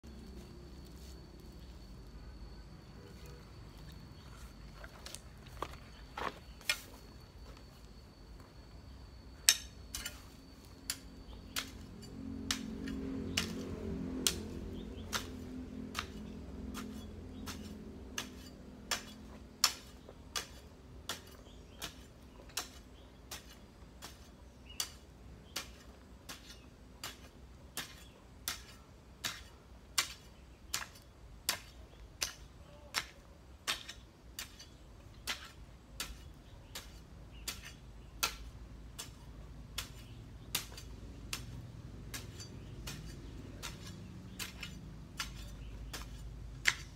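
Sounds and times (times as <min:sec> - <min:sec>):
low hum: 0:00.0 - 0:22.5
hoe chopping into dry soil: 0:09.4 - 0:46.9.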